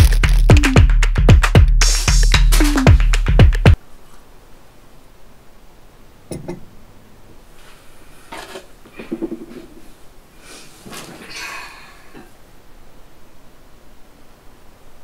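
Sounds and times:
clothing and cushions rustling: 7.5s - 11.3s.

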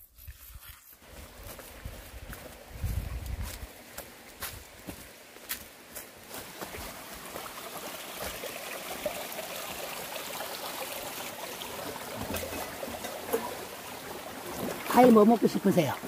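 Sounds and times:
footsteps on path: 0.0s - 8.5s
stream trickling over rocks: 0.2s - 16.0s.

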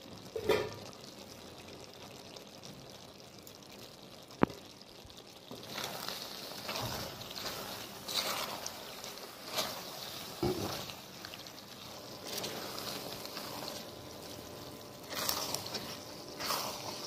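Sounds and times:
food sizzling: 0.0s - 17.0s
spatula scraping pan: 5.6s - 17.0s.

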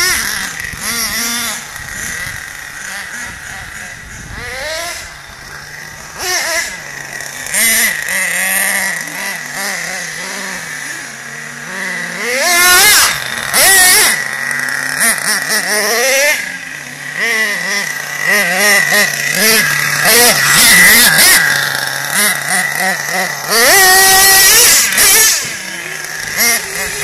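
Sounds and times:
glow engine idling and revving: 0.0s - 27.0s.

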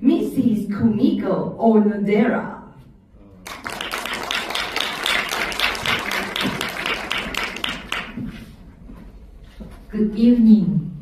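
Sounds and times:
audience applauding: 3.4s - 8.3s.

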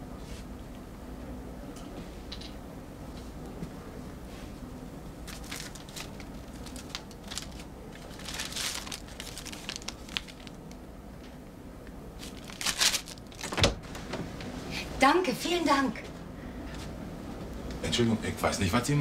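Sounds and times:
paper banknotes rustling: 5.3s - 10.6s, 12.2s - 13.5s.

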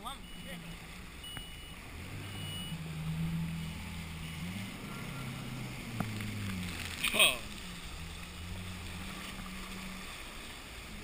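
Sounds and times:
jet ski engine running: 0.0s - 11.0s
water splashing: 0.0s - 11.0s
faint short high beeps: 1.2s - 2.8s.

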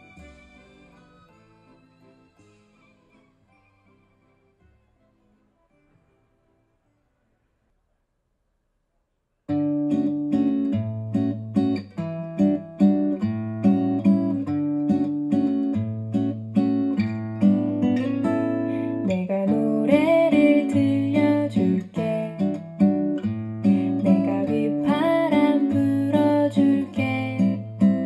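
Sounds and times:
strummed acoustic guitar: 9.5s - 28.0s
person singing: 18.7s - 22.6s, 23.7s - 28.0s.

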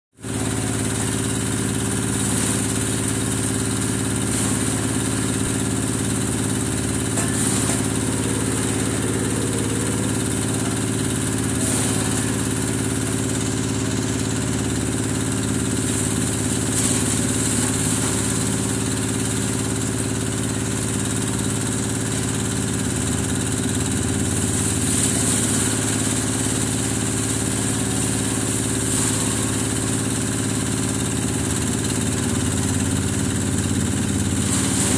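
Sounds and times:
grass chopper engine drone: 0.2s - 34.9s
cutter hum: 1.9s - 19.8s.

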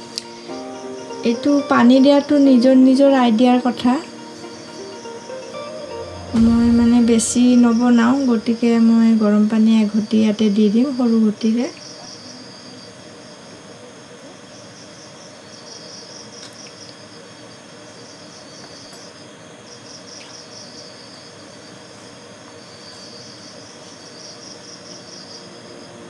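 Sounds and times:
steady low hiss: 0.0s - 11.6s
cricket chirping: 0.0s - 26.0s.

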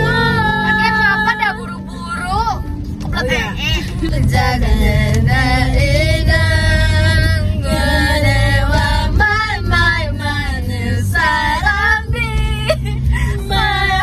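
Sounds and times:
women singing along: 0.0s - 2.4s, 3.2s - 14.0s
song on car stereo: 0.0s - 14.0s.

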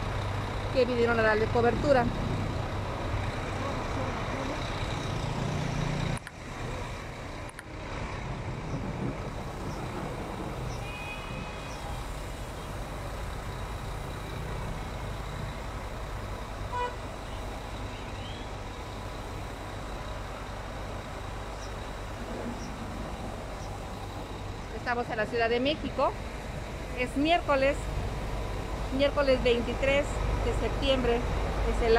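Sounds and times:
street traffic rumble: 0.0s - 31.9s
car horn beep: 10.8s - 11.8s, 16.7s - 17.0s.

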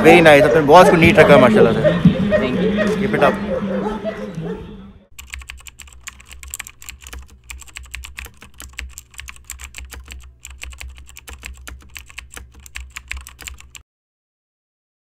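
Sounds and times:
rapid irregular clicking: 5.1s - 13.8s.

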